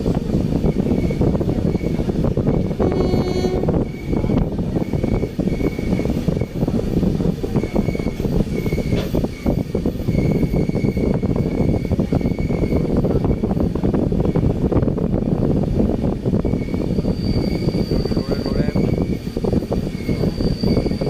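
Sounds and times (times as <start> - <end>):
moving vehicle rumble: 0.0 - 21.0.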